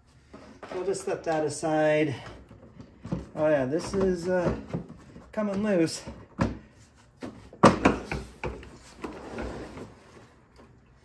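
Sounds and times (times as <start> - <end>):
hard knocks and clicks on plastic: 7.6 - 8.6.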